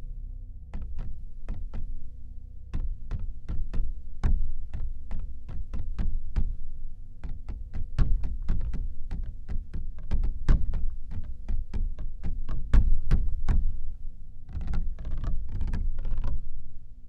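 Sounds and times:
low rumble: 0.0s - 7.2s
faint steady hum: 0.0s - 17.0s
sharp percussive knocks and taps: 0.8s - 1.9s, 2.8s - 16.5s.

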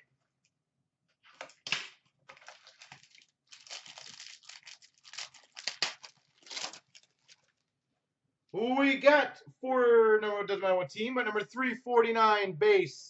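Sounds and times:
packaging crinkling and tearing: 2.3s - 7.7s.

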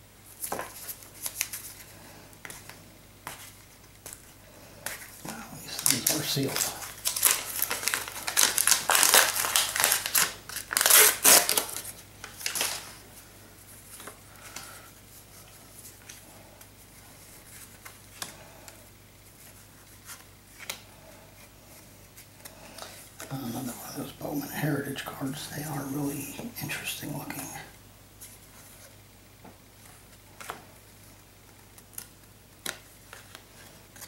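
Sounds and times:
wax paper wrapper crackling and tearing: 5.2s - 13.0s.

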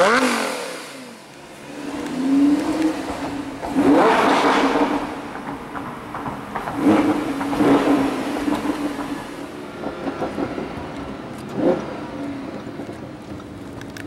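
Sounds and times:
car engine from inside cabin: 0.0s - 5.8s.

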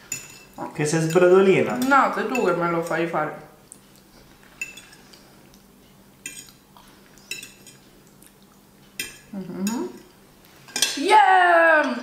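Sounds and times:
fork clinking on ceramic plate: 4.6s - 5.1s.

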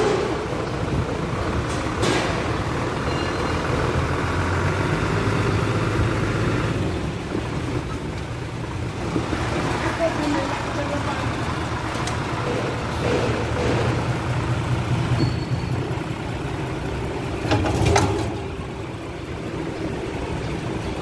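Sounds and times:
low mechanical rumble: 0.0s - 21.0s
sharp metallic knocks: 1.6s - 3.9s, 11.4s - 16.1s.

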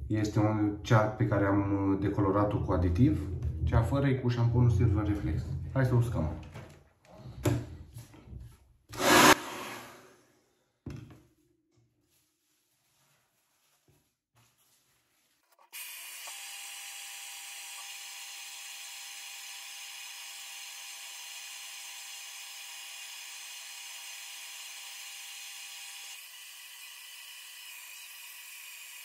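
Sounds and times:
hair dryer running: 9.0s - 10.0s.

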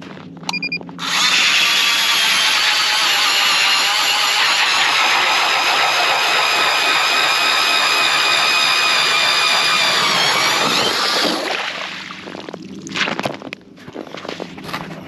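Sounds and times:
ice auger boring through ice: 1.0s - 12.4s.

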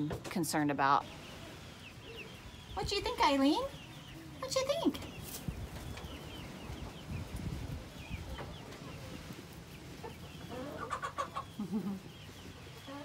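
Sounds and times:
hen clucking: 8.0s - 13.0s.

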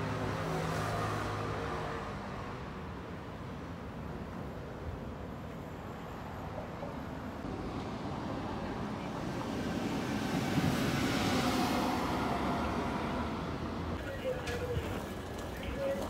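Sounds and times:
city road traffic: 0.0s - 16.0s.

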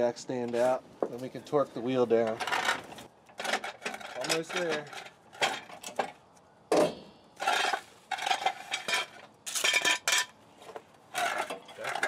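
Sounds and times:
metal jack clanking and rattling: 2.2s - 6.2s, 11.1s - 12.0s.

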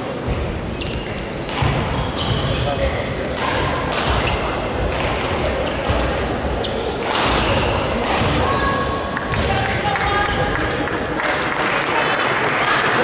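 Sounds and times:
shoes squeaking on court: 0.7s - 3.4s, 4.1s - 8.0s
racket striking shuttlecock: 3.3s - 6.2s, 7.0s - 8.5s.

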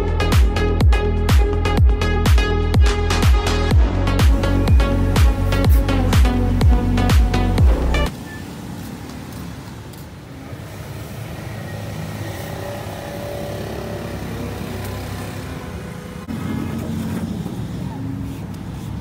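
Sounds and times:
low rumble of vehicle engines: 7.7s - 19.0s.

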